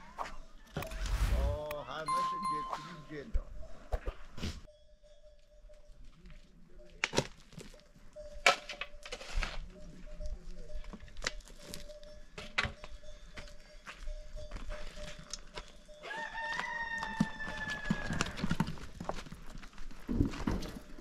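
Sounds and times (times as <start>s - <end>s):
shovel scraping soil: 0.8s - 1.6s, 9.0s - 9.6s.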